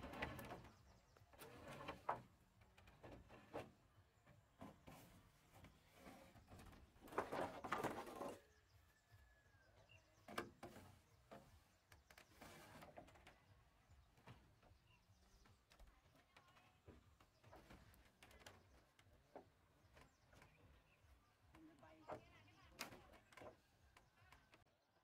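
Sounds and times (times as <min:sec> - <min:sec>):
wooden pole scraping timber: 0:00.0 - 0:08.7, 0:10.0 - 0:15.9.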